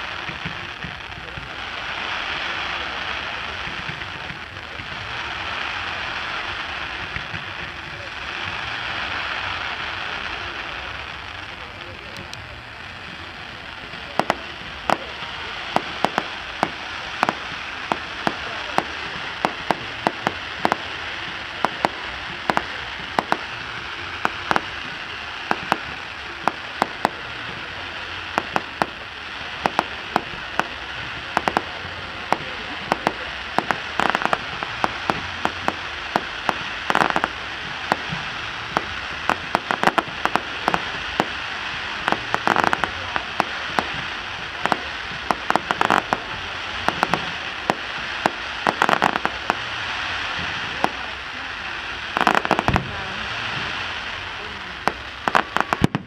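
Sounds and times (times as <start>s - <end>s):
fireworks hiss: 0.0s - 56.0s
fireworks pops and crackles: 0.0s - 56.0s.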